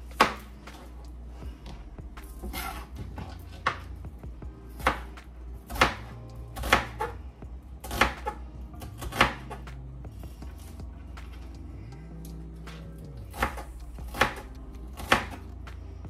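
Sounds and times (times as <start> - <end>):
knife chopping on cutting board: 0.2 - 0.8, 1.7 - 4.0, 4.7 - 5.1, 5.7 - 7.2, 7.8 - 9.7, 13.3 - 15.4.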